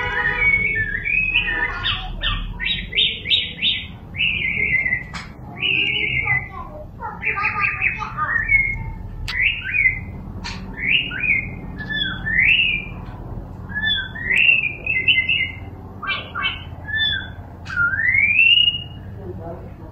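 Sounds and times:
songbird singing whistled notes: 0:00.4 - 0:06.5, 0:07.2 - 0:13.0, 0:13.7 - 0:19.2
bird clicks: 0:05.0 - 0:05.4, 0:08.7 - 0:09.5, 0:10.4 - 0:10.8.

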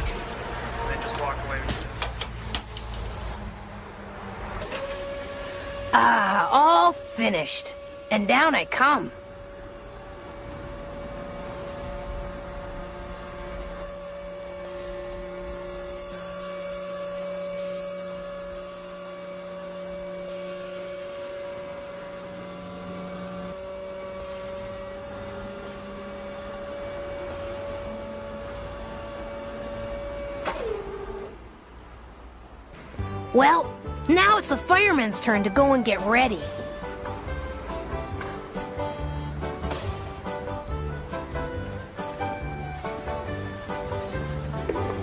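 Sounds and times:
hydraulic pump whining: 0:00.0 - 0:03.4, 0:04.5 - 0:31.7, 0:32.7 - 0:45.0.

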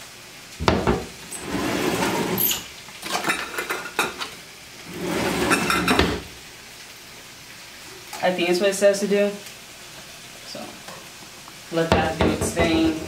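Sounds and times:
drawer sliding on runners: 0:01.4 - 0:02.7, 0:04.9 - 0:06.3
metal utensils clinking: 0:05.2 - 0:06.2.

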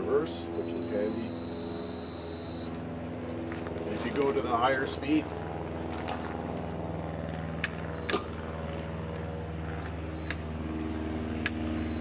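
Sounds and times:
higher hum: 0:00.0 - 0:12.0
drill press motor humming: 0:00.5 - 0:02.8, 0:11.4 - 0:12.0.

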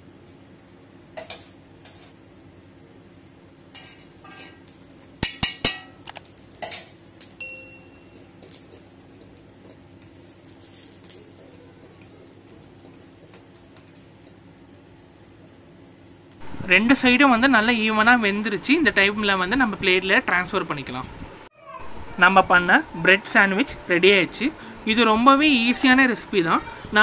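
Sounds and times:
faint steady hum: 0:00.0 - 0:27.0
spatula scraping on griddle: 0:01.2 - 0:02.2, 0:08.4 - 0:11.4.

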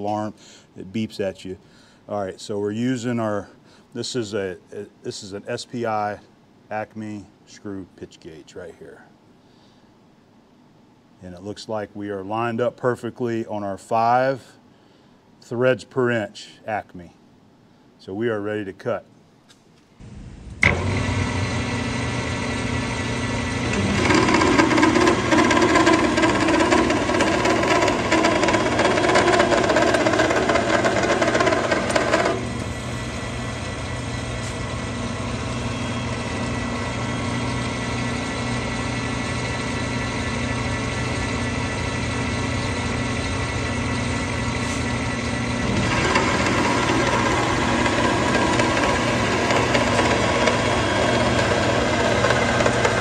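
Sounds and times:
lathe motor hum: 0:20.0 - 0:53.0
lathe cutting metal: 0:20.6 - 0:53.0.

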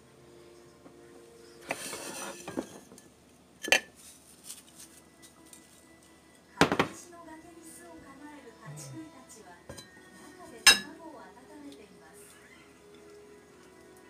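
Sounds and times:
dishes clattering: 0:01.6 - 0:03.0, 0:09.7 - 0:10.0, 0:10.6 - 0:10.9
plates scraping rustle: 0:01.6 - 0:03.0
ceramic clink: 0:10.7 - 0:10.9.

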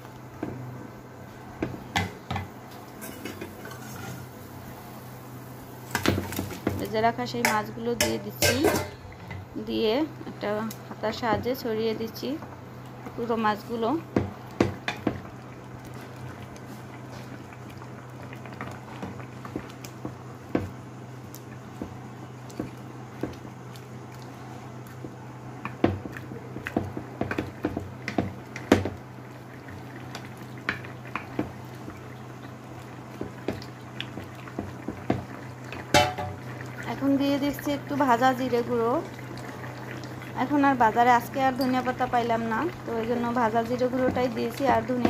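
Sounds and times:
gravy boiling with pops: 0:00.0 - 0:45.0
wooden spoon knocking on pan: 0:14.1 - 0:15.2, 0:19.5 - 0:20.8, 0:25.0 - 0:29.0, 0:33.2 - 0:35.3, 0:35.9 - 0:36.4, 0:43.8 - 0:45.0.

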